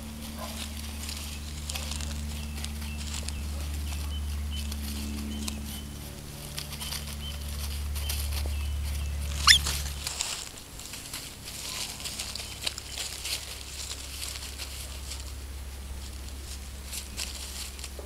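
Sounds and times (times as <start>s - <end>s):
animals rustling in dry leaves: 0.0s - 18.0s
steady low hum: 0.0s - 18.0s
high chirps: 9.3s - 9.8s
loud shrill squeak: 9.4s - 9.7s.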